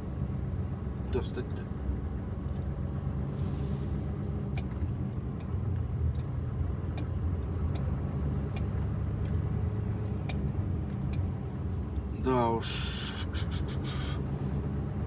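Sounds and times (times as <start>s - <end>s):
diesel truck engine running: 0.0s - 15.0s
short hiss: 3.4s - 4.0s, 12.7s - 14.5s.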